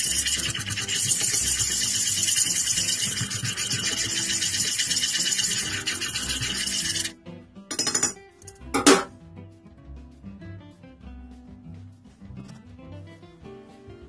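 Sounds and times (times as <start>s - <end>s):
chopsticks scraping saucepan: 0.0s - 7.1s.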